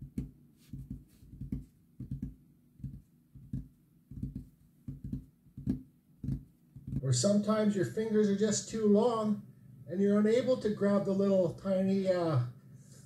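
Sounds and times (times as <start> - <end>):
fingertips tapping on table: 0.0 - 7.0.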